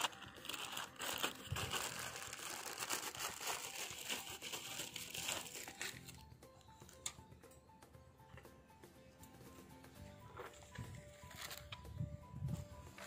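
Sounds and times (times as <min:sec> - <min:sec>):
crinkling and rustling: 0:00.0 - 0:06.2, 0:10.3 - 0:11.9.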